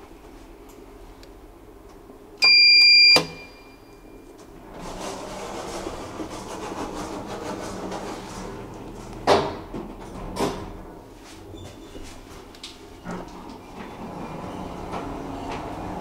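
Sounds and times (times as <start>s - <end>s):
elevator doors sliding open: 4.4s - 16.0s.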